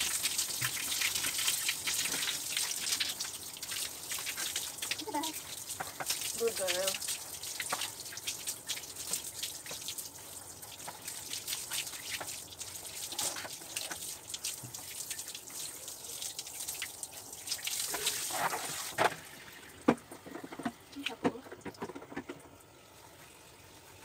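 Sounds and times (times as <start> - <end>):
water dripping on tiled floor: 0.0 - 18.2
shower head spraying water: 6.1 - 7.0.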